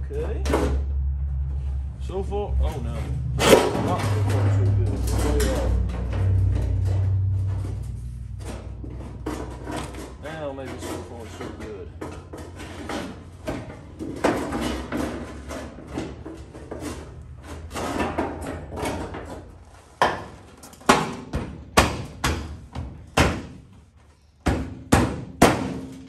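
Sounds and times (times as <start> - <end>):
metal panel scraping: 2.6 - 20.0.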